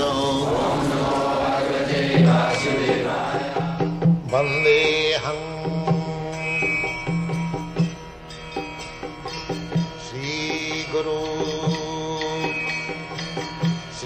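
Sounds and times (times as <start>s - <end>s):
chanted mantra: 0.0s - 6.7s.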